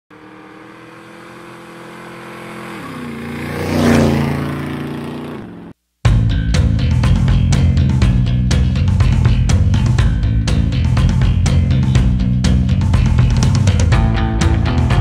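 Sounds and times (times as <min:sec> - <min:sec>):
motorcycle passing by: 0:00.1 - 0:05.8.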